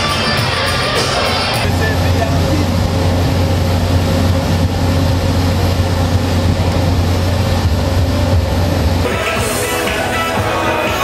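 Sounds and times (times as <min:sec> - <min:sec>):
music: 0:00.0 - 0:01.8, 0:09.0 - 0:11.0
diesel generator humming: 0:00.0 - 0:11.0.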